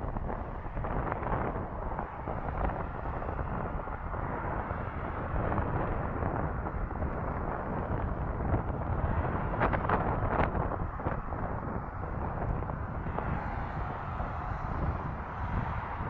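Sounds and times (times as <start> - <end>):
jet engines roaring: 0.0 - 16.0.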